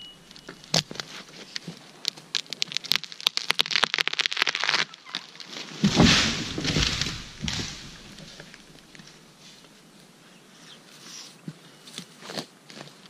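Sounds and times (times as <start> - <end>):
branches crashing and rustling: 0.4 - 9.7
tree crashing to the ground: 2.1 - 9.4.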